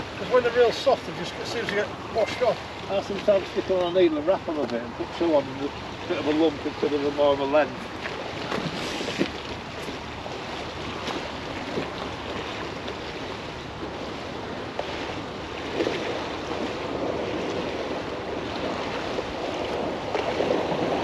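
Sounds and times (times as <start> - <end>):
water lapping against bank: 0.0 - 21.0
wind on microphone: 7.8 - 21.0.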